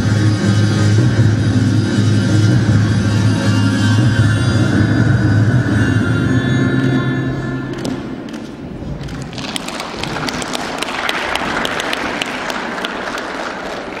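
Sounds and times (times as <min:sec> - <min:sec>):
music: 0:00.0 - 0:08.4
applause: 0:09.3 - 0:14.0.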